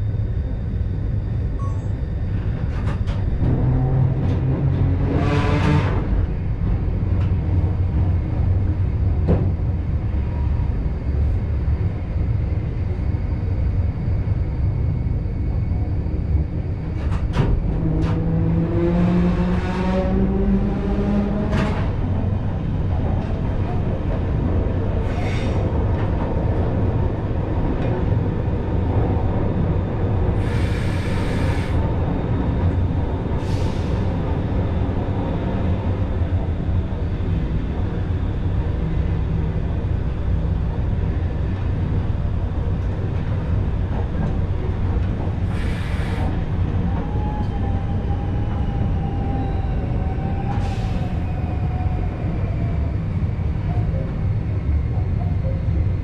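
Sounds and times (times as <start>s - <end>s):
faint whine: 0.0s - 4.3s
train wheels rumbling: 2.2s - 13.6s.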